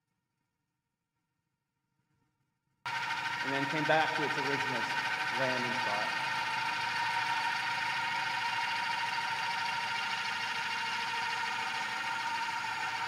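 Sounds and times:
helicopter rotors buzzing hum: 0:02.9 - 0:13.0.

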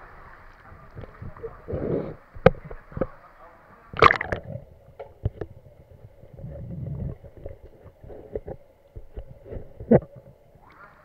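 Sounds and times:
faint steady hum: 0:00.0 - 0:11.0
underwater sharp clicks and knocks: 0:02.3 - 0:03.1, 0:04.0 - 0:10.4
low underwater rumble: 0:04.0 - 0:10.7.

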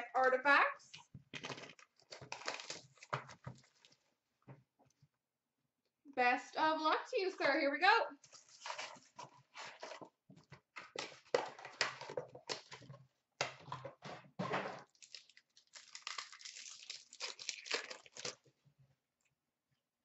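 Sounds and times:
card pack wrapper tearing and crinkling: 0:01.4 - 0:03.9, 0:14.8 - 0:18.5.

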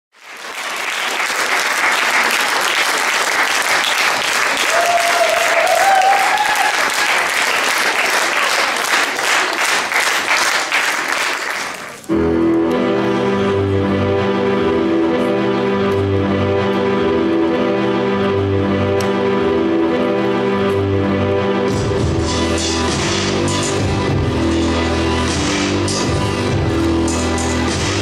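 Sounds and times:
audience applauding: 0:00.1 - 0:12.1
person cheering: 0:04.5 - 0:07.2
instrumental music: 0:12.1 - 0:28.0.

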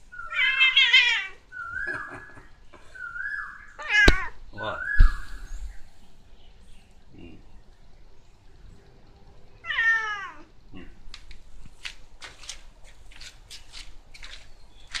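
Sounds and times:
cat meowing: 0:00.2 - 0:01.4, 0:03.8 - 0:04.3, 0:09.6 - 0:10.5.

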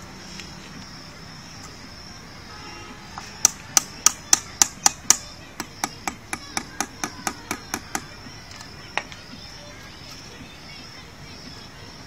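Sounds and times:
hammer tapping: 0:03.4 - 0:08.1.

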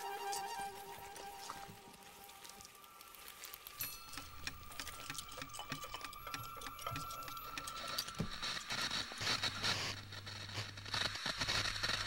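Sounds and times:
crackling hiss: 0:00.0 - 0:12.0
scattered clicks and ticks: 0:03.8 - 0:08.5.

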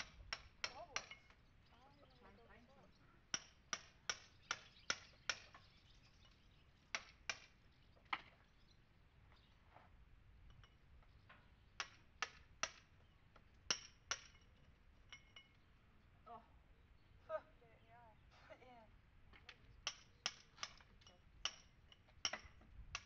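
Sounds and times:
hammer striking chisel on stone: 0:00.0 - 0:01.4, 0:03.3 - 0:05.5, 0:06.9 - 0:07.5, 0:11.8 - 0:12.9, 0:13.7 - 0:14.5, 0:19.8 - 0:23.0.

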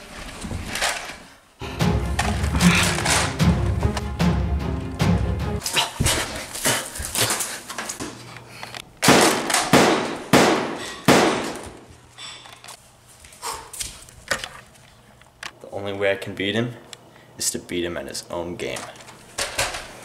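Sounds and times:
sharp ringing bangs: 0:09.1 - 0:11.6.

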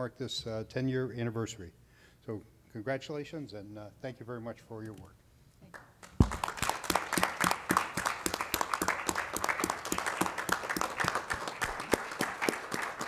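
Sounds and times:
people clapping: 0:05.7 - 0:13.0.

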